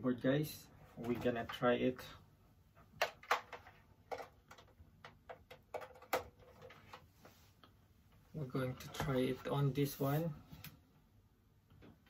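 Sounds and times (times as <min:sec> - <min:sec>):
cable plug clicking and knocking: 0:03.0 - 0:06.8.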